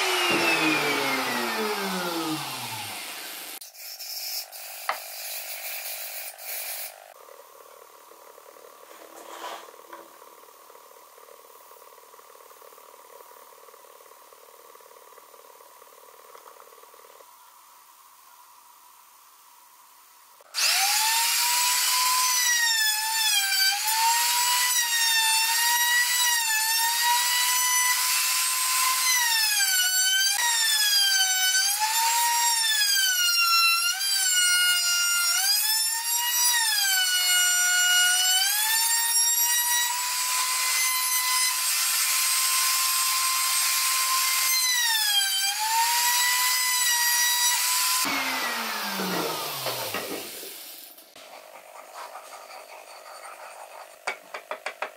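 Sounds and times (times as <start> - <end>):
trim router whine: 0.0 - 3.6, 20.5 - 33.2, 35.4 - 51.0.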